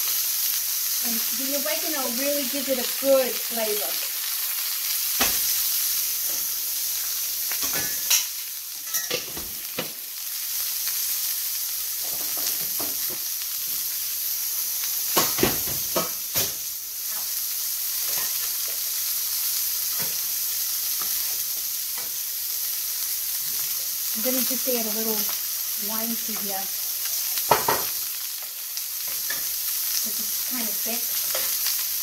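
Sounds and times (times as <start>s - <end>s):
steak sizzling in a skillet: 0.0s - 32.0s
lids and spoon clinking: 7.6s - 9.4s.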